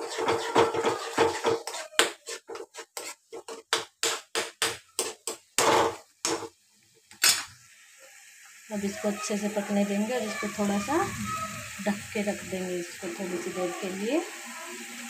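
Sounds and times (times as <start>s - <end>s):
metal spoon scraping paste: 0.0s - 3.8s.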